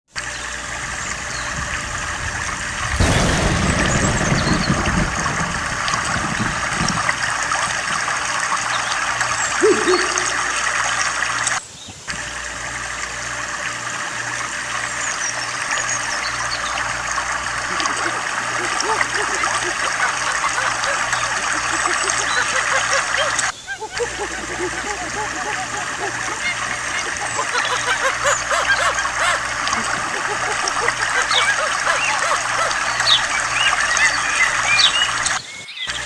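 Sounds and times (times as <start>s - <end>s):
waterfall pouring into pool: 0.1s - 36.0s
low rumble: 1.2s - 8.4s.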